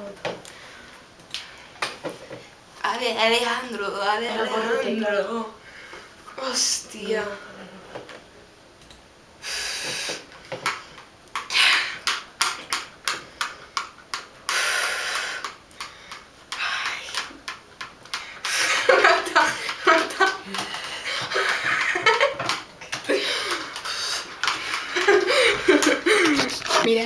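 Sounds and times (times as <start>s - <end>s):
mouth noises and clicks: 9.7s - 18.8s
girl whispering: 16.6s - 17.2s
girl laughing: 18.5s - 24.0s, 24.6s - 26.9s.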